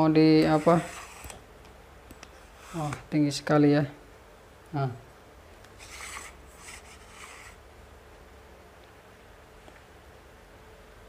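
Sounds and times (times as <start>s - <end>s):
low hum and hiss: 0.0s - 11.0s.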